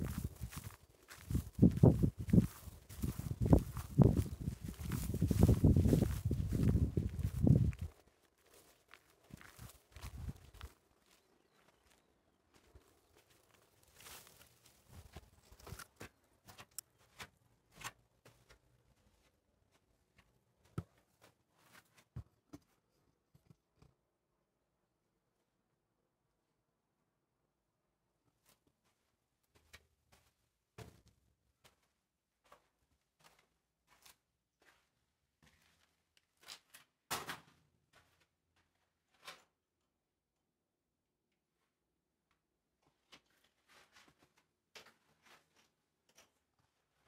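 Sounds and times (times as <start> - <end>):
footsteps on gritty concrete: 0.0 - 7.9
footsteps on sand: 0.0 - 19.9, 31.6 - 36.6.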